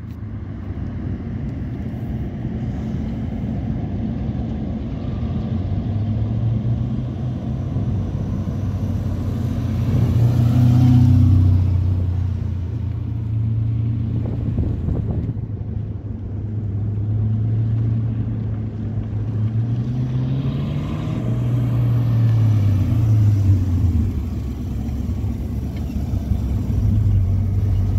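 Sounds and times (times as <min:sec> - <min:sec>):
deep car engine running: 0:21.0 - 0:27.9.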